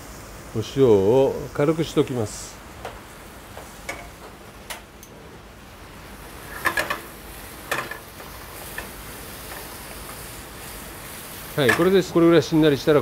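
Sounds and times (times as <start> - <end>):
faint sizzle: 0.0 - 13.0
spatula stirring vegetables: 6.2 - 12.3.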